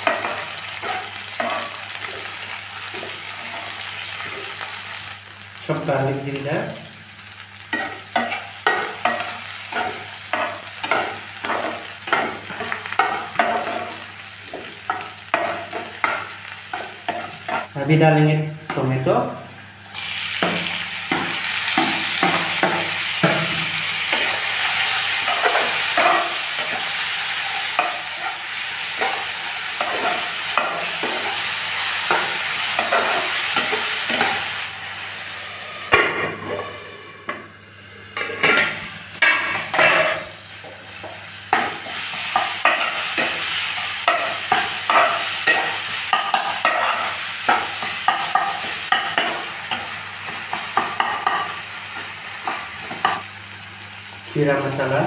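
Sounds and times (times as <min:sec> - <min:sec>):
vegetables sizzling in oil: 0:00.0 - 0:18.0, 0:18.7 - 0:55.0
steel ladle scraping pan: 0:35.4 - 0:37.5.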